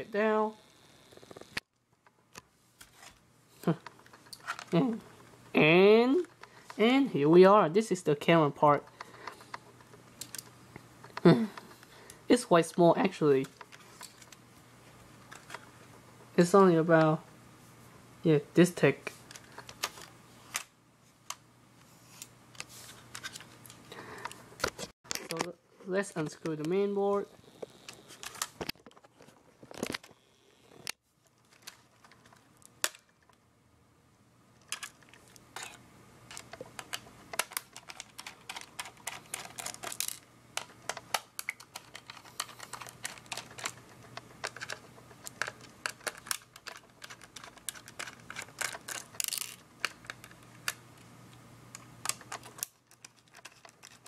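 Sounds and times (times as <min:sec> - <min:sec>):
handling plastic casing: 0:34.6 - 0:50.9, 0:51.8 - 0:54.0.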